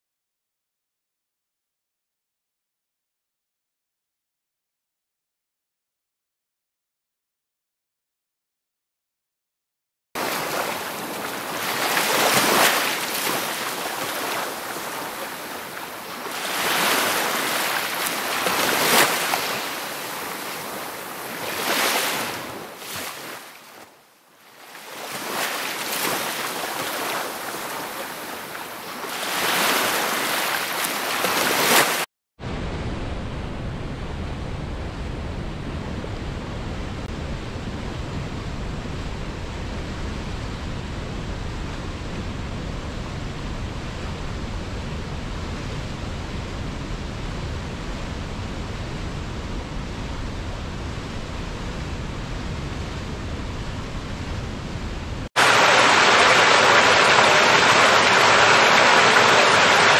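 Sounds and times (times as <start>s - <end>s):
river rushing through rapids: 10.2s - 23.4s, 24.8s - 32.0s, 55.4s - 59.9s
ocean surf washing onto beach: 10.2s - 32.1s, 55.2s - 59.9s.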